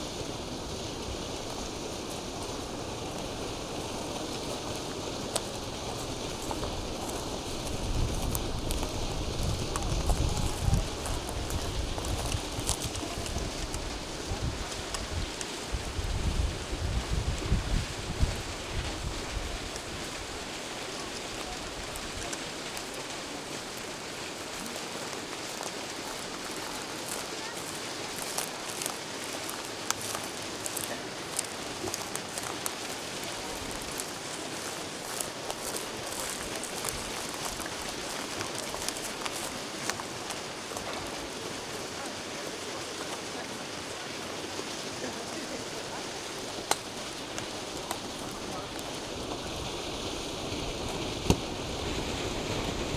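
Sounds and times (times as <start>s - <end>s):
wind rumbling on microphone: 0.0s - 43.0s, 45.3s - 52.9s
outdoor hiss: 0.0s - 52.9s.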